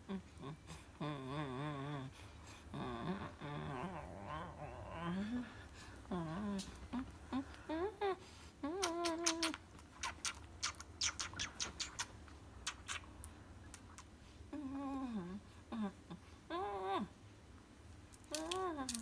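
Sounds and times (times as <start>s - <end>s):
kissing smacks: 8.6s - 14.1s.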